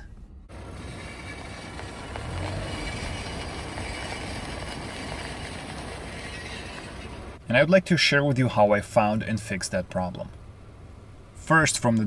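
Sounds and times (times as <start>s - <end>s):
tyre and road noise: 0.0s - 12.0s
metal scraping against brake rotor: 0.5s - 7.4s.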